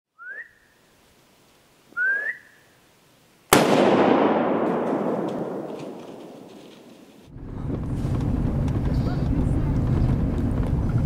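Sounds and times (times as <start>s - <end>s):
rising whistle: 0.2s - 0.7s, 1.9s - 2.7s
loud bang: 3.5s - 10.2s.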